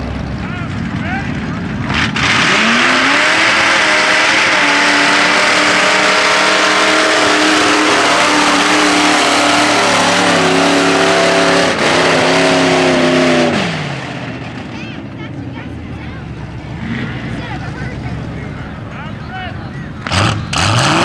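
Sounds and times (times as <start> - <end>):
pickup truck engine revving hard: 1.8 - 14.4, 20.0 - 21.0.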